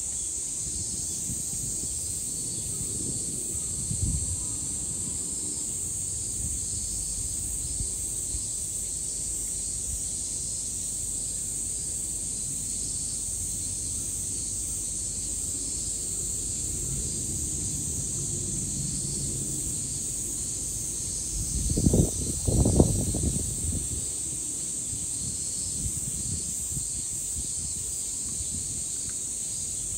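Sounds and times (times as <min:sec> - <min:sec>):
wind rumbling on microphone: 0:00.0 - 0:08.6, 0:16.5 - 0:29.9
steady high hiss: 0:00.0 - 0:29.9.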